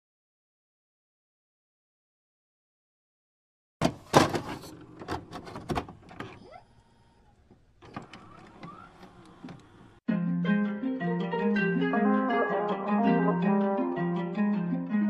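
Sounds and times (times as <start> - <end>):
plucked-string music: 10.1 - 15.0.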